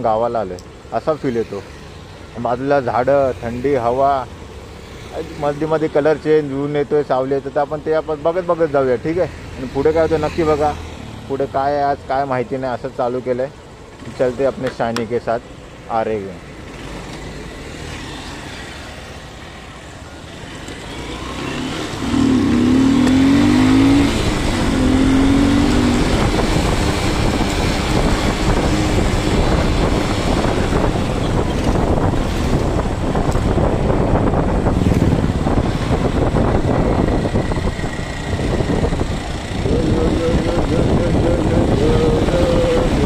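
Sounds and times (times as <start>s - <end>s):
motorcycle engine accelerating: 20.4s - 43.0s
wind noise on microphone: 22.1s - 43.0s.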